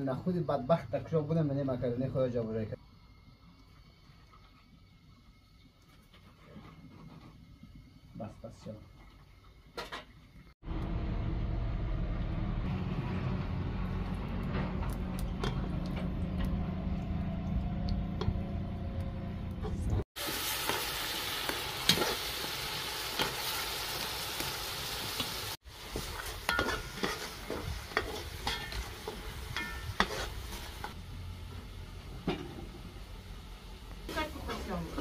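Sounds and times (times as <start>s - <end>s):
low steady rumble: 10.6s - 20.0s
tomatoes sizzling in hot oil: 20.2s - 35.0s
metal ladle scraping a pot: 26.0s - 31.0s.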